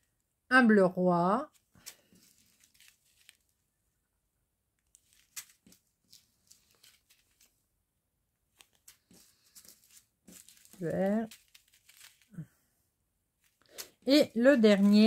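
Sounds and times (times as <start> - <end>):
plastic bags crinkling: 1.5 - 3.6, 4.9 - 7.6, 8.5 - 12.4, 13.4 - 15.0.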